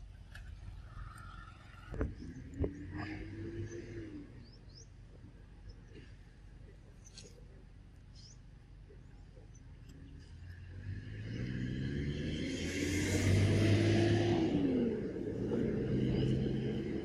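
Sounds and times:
vehicle engine passing by: 0.7s - 4.8s, 10.1s - 17.0s.

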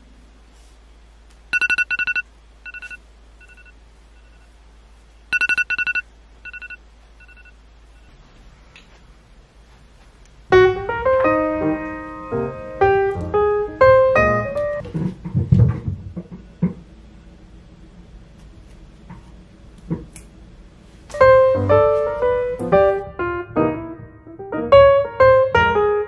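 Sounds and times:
alarm beeping: 1.5s - 4.5s, 5.3s - 8.1s
piano background music: 10.5s - 14.8s, 21.1s - 26.0s.

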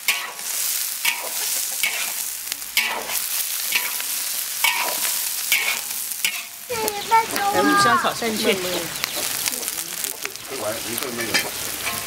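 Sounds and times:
metal spatula scraping a wok: 0.0s - 6.6s, 11.2s - 12.0s
food sizzling in hot oil: 0.0s - 12.0s.

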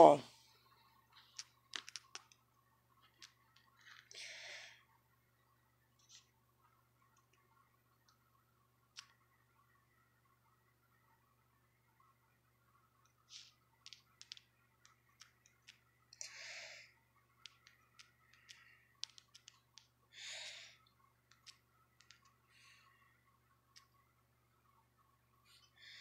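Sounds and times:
fingers tapping phone touchscreen: 1.3s - 2.4s, 13.3s - 15.8s, 17.4s - 20.0s, 21.3s - 22.4s.

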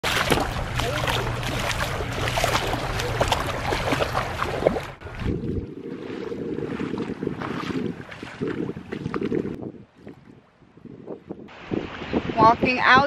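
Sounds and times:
small waves lapping on sand: 0.0s - 10.2s, 11.5s - 13.0s
bare feet splashing in water: 0.0s - 10.4s
wind rumble on microphone: 0.0s - 13.0s.

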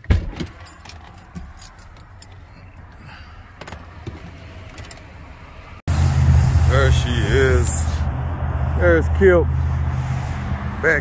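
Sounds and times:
car keys jingling: 0.3s - 5.2s.

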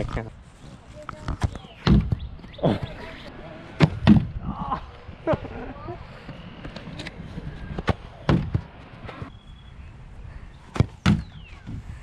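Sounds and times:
ball kicked against plastic board: 10.8s - 11.3s.

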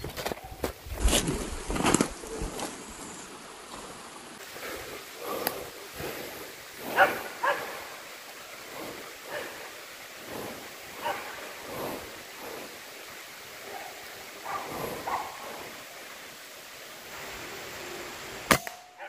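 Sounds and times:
dog barking: 6.9s - 7.9s, 9.3s - 9.6s, 11.0s - 11.4s, 13.6s - 15.4s.

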